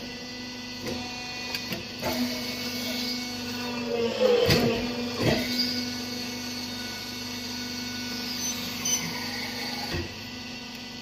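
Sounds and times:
machine motor humming: 0.8s - 11.0s.

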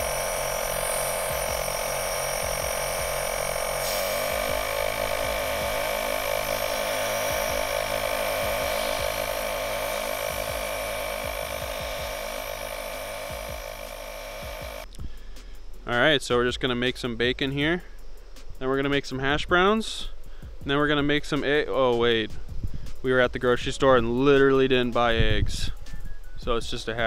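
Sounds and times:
air compressor running: 0.0s - 14.9s
compressed air blowing: 0.0s - 14.9s.

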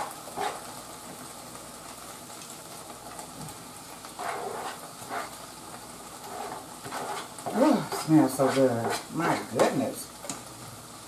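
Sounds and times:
vegetables scraped into pan: 0.0s - 0.7s, 4.1s - 9.8s
okra sizzling in a skillet: 0.0s - 11.0s.

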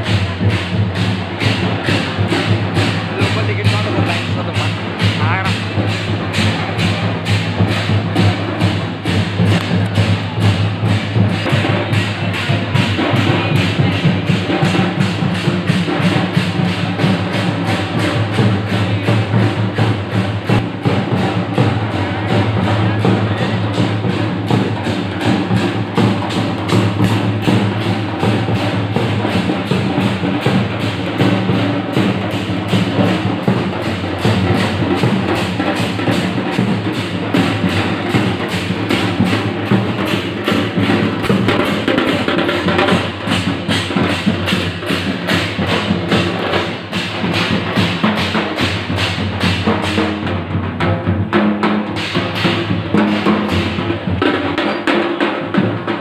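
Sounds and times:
fast steady drumming music: 0.0s - 56.0s.

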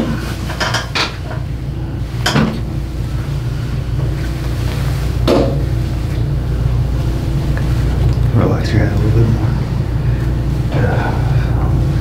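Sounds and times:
steady low rumbling: 0.0s - 12.0s
soft rustles: 2.8s - 6.3s.

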